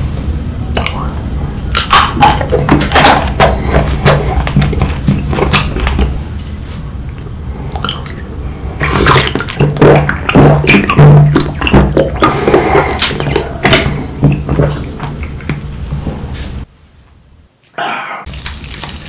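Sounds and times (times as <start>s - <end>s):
swallowing and gulping: 0.7s - 6.2s, 7.1s - 15.7s
crisp bites and chewing: 18.3s - 19.0s.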